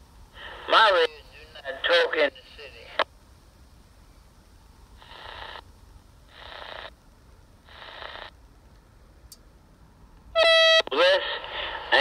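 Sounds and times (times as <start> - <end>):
radio static bursts: 5.0 - 5.6, 6.3 - 6.9, 7.6 - 8.3, 10.8 - 12.0.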